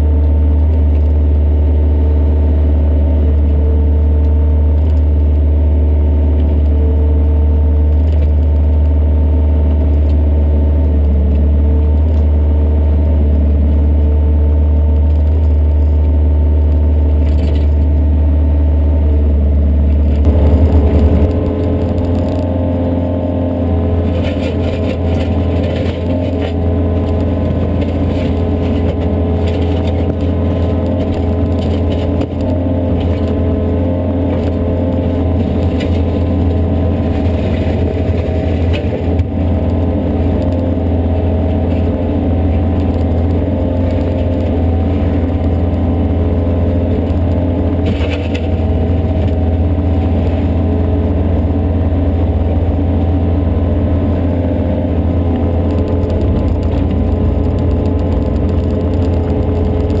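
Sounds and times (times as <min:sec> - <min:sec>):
excavator diesel engine droning: 0:00.0 - 1:00.0
excavator bucket clatter: 0:24.1 - 0:33.4, 0:47.8 - 0:49.5.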